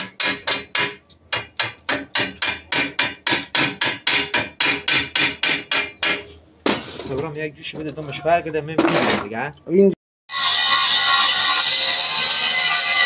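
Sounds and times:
hammer striking steel: 0:00.0 - 0:07.0.

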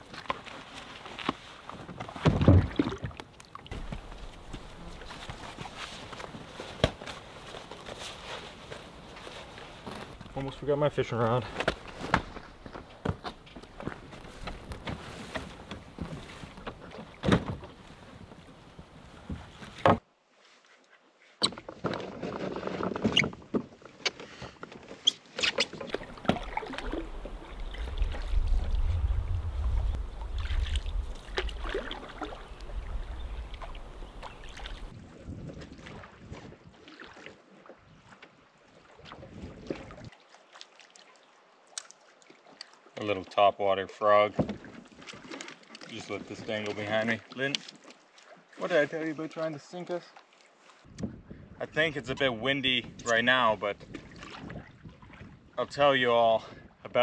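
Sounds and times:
water lapping at hull: 0:00.0 - 0:20.0, 0:24.2 - 0:51.6, 0:53.7 - 0:55.6
wind buffeting microphone: 0:26.1 - 0:36.7, 0:50.9 - 0:51.6.

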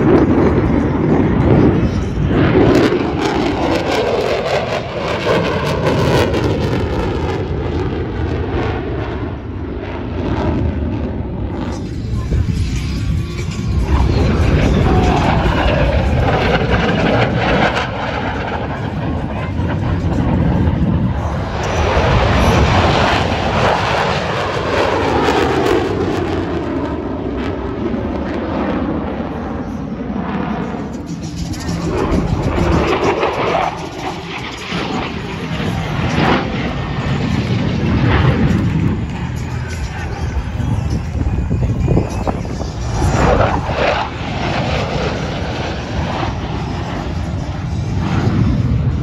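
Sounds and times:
fighter jet engine roaring: 0:00.0 - 0:49.0.

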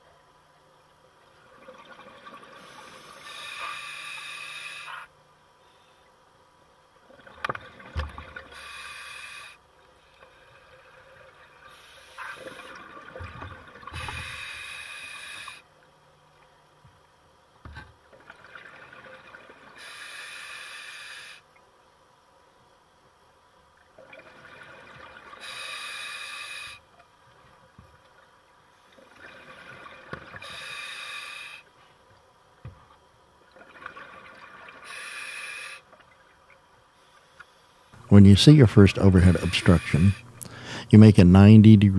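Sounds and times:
scuba regulator breathing hiss: 0:02.6 - 0:06.0, 0:08.5 - 0:09.6, 0:11.7 - 0:12.8, 0:14.0 - 0:15.7, 0:19.8 - 0:21.5, 0:25.4 - 0:26.9, 0:30.4 - 0:31.7, 0:34.8 - 0:35.9.

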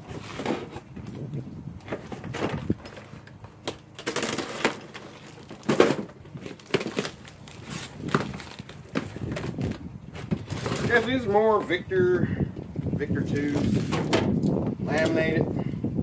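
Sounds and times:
cardboard box tearing open: 0:03.7 - 0:11.2
plastic packaging crinkling: 0:03.9 - 0:11.3.

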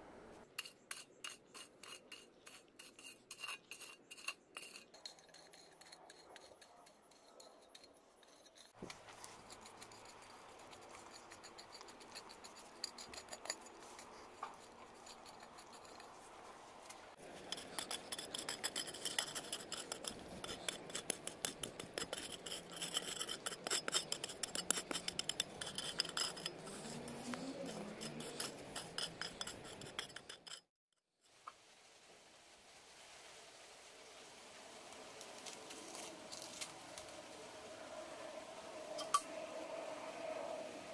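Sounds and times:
metal blades scraping dry soil: 0:00.5 - 0:30.7, 0:35.4 - 0:37.2
clicks of grit and pebbles: 0:00.6 - 0:30.6.

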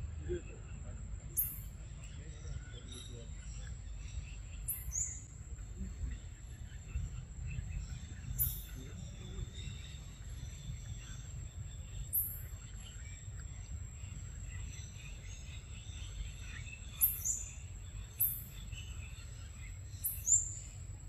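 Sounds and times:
high insect drone: 0:00.1 - 0:21.0
high-pitched bird chirps: 0:16.3 - 0:18.6, 0:19.8 - 0:20.7.

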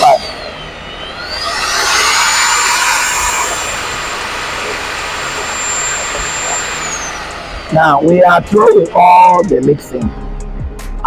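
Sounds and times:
electric drill motor whine: 0:00.0 - 0:09.9
foam churning in a bucket: 0:01.2 - 0:09.4.

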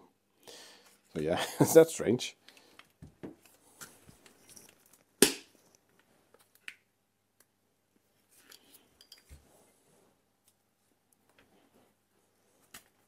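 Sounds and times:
faint tool clicks and handling: 0:08.4 - 0:09.4.

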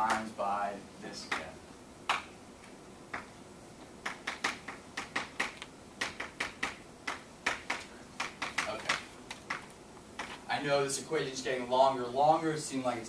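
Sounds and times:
chalk tapping on blackboard: 0:04.0 - 0:10.4.

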